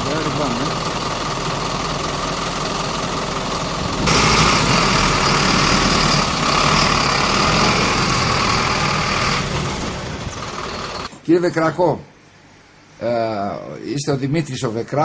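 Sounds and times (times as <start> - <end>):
truck engine running: 0.0 - 11.1.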